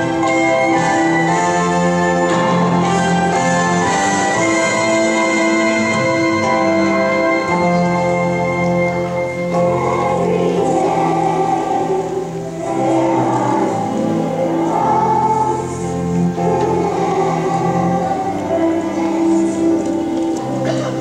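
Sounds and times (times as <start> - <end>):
choir singing held chords: 0.0 - 21.0.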